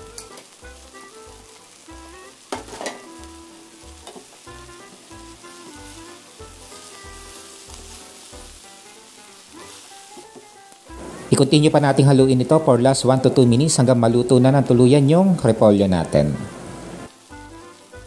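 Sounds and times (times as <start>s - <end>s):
light background music: 0.0s - 18.0s
noodles sizzling in frying pan: 0.0s - 18.0s.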